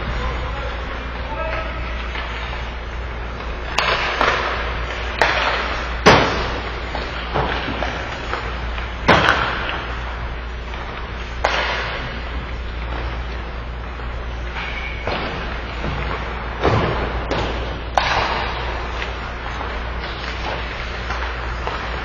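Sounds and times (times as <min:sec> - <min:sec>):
steady low hum: 0:00.0 - 0:22.0
hockey pucks cracking off sticks: 0:01.5 - 0:22.0
pucks banging into boards: 0:03.3 - 0:10.1, 0:10.8 - 0:13.4, 0:14.4 - 0:22.0.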